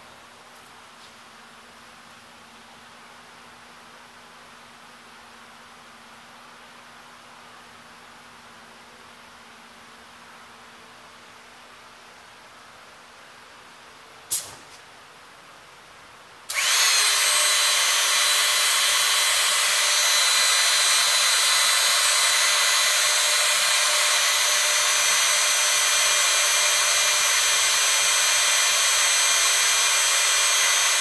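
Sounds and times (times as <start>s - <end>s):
hydraulic pump hissing and whining: 16.5s - 31.0s.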